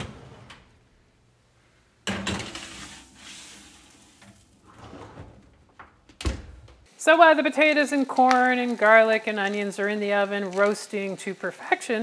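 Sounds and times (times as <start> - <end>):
metal sheet pan scraping on rack: 2.2 - 5.4.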